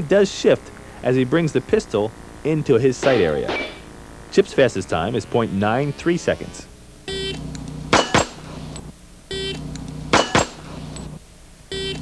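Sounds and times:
shot timer beep: 7.1 - 8.3, 9.3 - 11.1, 11.7 - 12.0
pistol shots: 7.9 - 8.6, 10.1 - 10.8.

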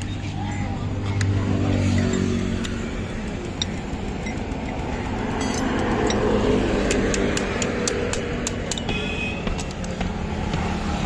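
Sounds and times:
road traffic hum: 0.0 - 11.0
light metal clinks: 3.5 - 6.4.

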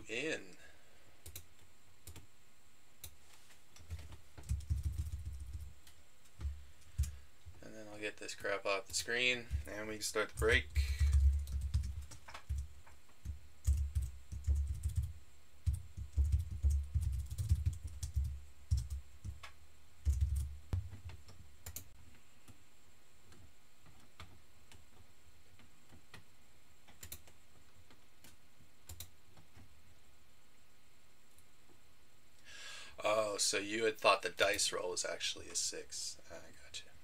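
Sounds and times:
typing on a computer keyboard: 1.2 - 2.3, 3.8 - 7.2, 10.3 - 21.9, 26.8 - 29.7.

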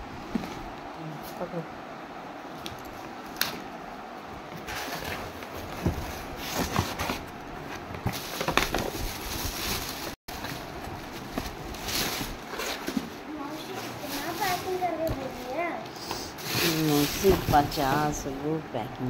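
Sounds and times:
plastic sheet rustling and crinkling: 4.6 - 18.4.

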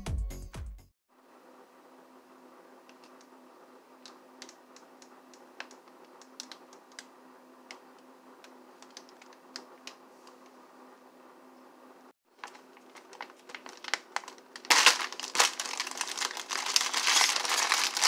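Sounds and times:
plastic pouch crinkling: 12.4 - 18.0.

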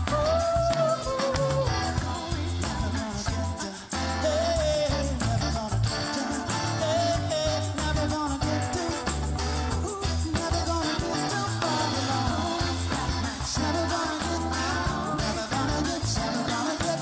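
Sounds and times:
bass: 0.0 - 17.0
drums: 0.0 - 17.0
person singing lead melody: 0.0 - 17.0.

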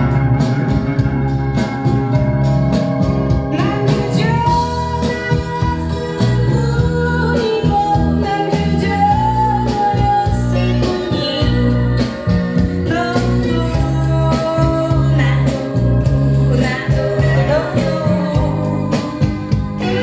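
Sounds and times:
guitar and bass: 0.0 - 20.0
woman singing blues song: 3.5 - 20.0.

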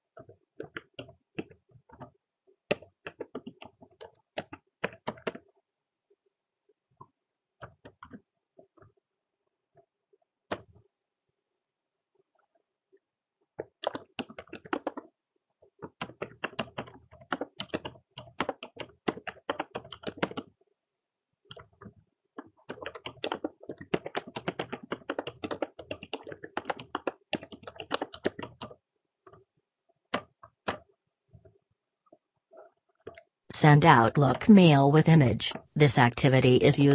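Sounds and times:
typing on computer keyboard: 0.2 - 2.1, 2.7 - 5.6, 13.6 - 15.1, 15.7 - 20.6, 21.5 - 29.4, 30.1 - 31.5.

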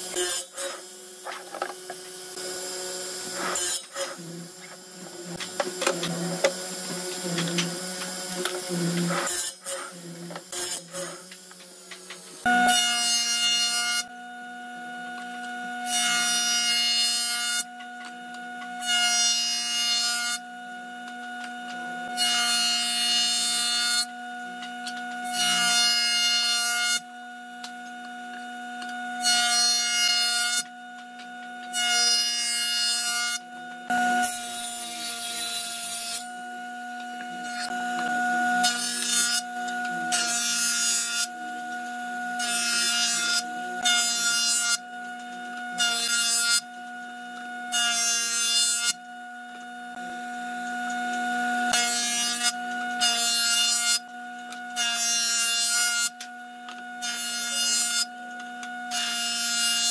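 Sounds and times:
wood rasping cut: 0.0 - 11.6, 37.4 - 41.4
jointer motor hum and whine: 0.0 - 59.9.

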